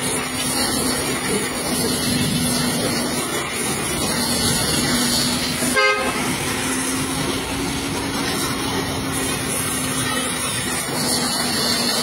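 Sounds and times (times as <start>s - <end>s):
pressure washer spraying water: 0.0s - 12.0s
vehicle horn toot: 5.7s - 6.4s.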